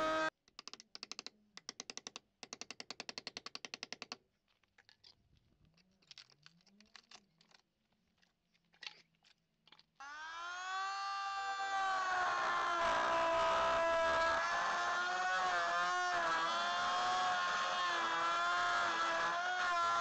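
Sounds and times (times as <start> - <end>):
power tool motor whine: 0.0 - 0.3, 10.0 - 20.0.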